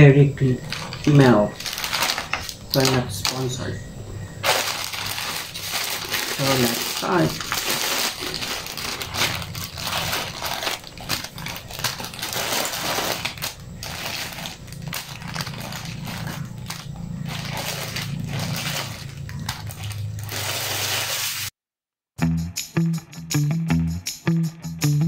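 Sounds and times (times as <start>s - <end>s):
plastic wrappers crinkling: 0.4s - 3.8s, 4.4s - 21.5s
packs dropped on table: 4.4s - 14.3s.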